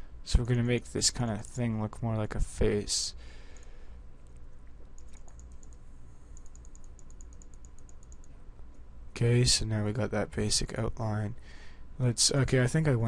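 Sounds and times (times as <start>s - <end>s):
low steady hum: 0.0s - 13.0s
mouse and keyboard clicking: 3.6s - 5.8s, 6.4s - 8.4s.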